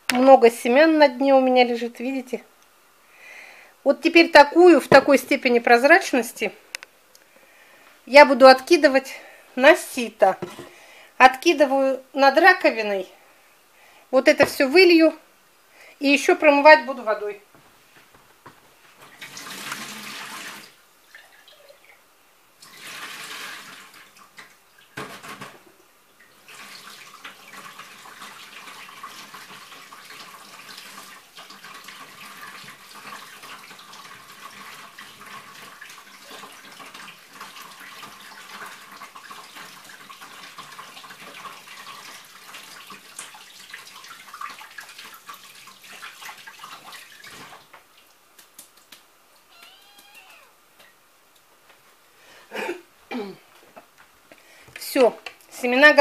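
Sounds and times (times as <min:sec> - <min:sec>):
kitchen tap running into sink: 0:19.0 - 0:21.8, 0:22.6 - 0:47.9
water splashing: 0:26.3 - 0:50.5.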